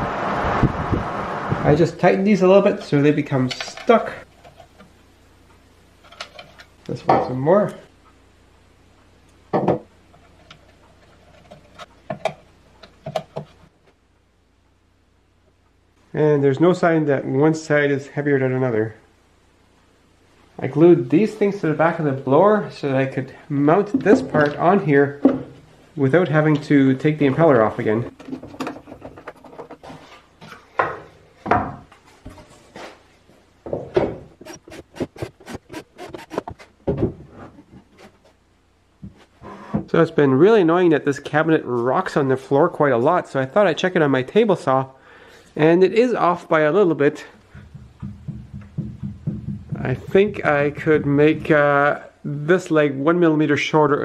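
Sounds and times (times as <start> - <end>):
wood knocking and rubbing: 47.5 - 51.6.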